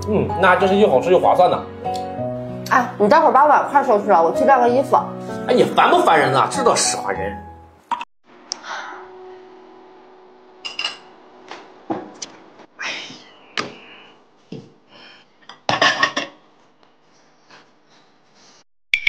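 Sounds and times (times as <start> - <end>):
dishes clattering into steel sink: 15.6 - 16.4.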